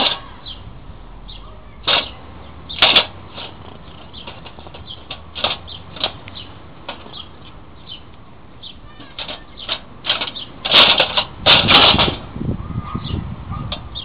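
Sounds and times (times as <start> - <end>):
squirrel clicking and chattering: 3.6 - 10.6.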